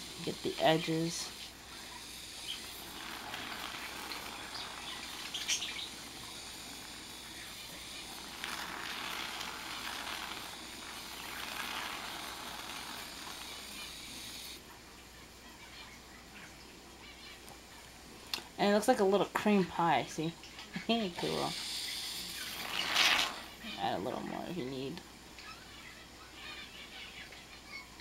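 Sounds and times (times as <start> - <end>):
aerosol foam hissing: 0.0 - 14.6, 21.2 - 23.6.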